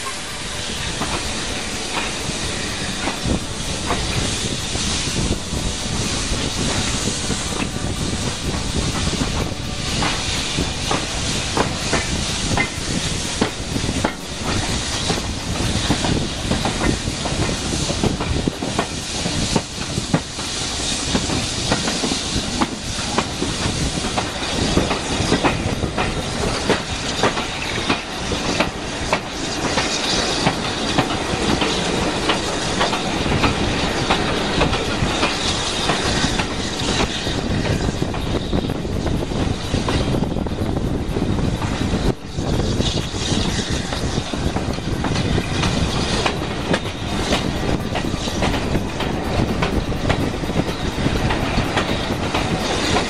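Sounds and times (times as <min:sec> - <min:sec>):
steam locomotive hiss and exhaust: 0:00.0 - 0:53.0
train wheels clattering over track: 0:00.0 - 0:53.0.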